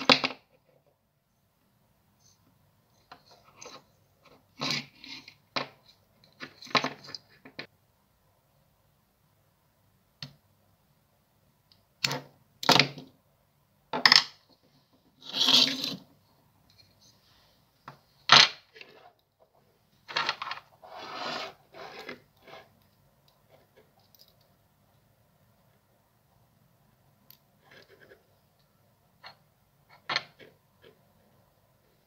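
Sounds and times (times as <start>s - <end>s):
small metallic clicks and scrapes: 21.4s - 24.6s, 27.3s - 31.0s.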